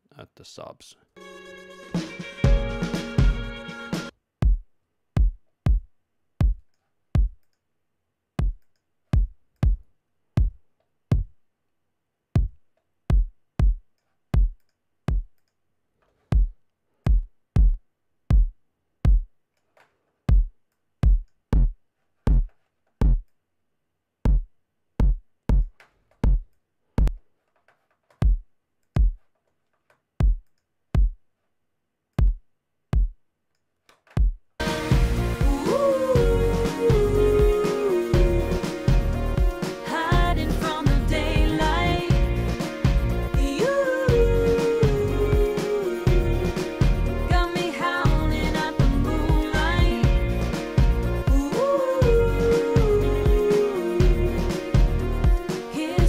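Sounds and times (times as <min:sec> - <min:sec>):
kick drum hits: 0:04.4 - 0:04.6, 0:05.2 - 0:06.6, 0:07.2 - 0:07.4, 0:08.4 - 0:08.6, 0:09.2 - 0:09.8, 0:10.4 - 0:11.3, 0:12.4 - 0:13.8, 0:14.4 - 0:15.3, 0:16.3 - 0:19.3, 0:20.3 - 0:23.2, 0:24.3 - 0:27.2, 0:28.2 - 0:28.4, 0:29.0 - 0:29.2, 0:30.2 - 0:30.4, 0:31.0 - 0:31.2, 0:32.2 - 0:32.4, 0:33.0 - 0:33.2, 0:34.2 - 0:35.6.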